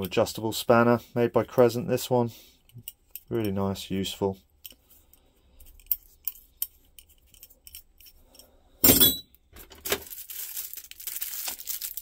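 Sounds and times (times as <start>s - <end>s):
metal clank into tool case: 8.8s - 9.3s
plastic sleeve crinkling: 9.6s - 12.0s.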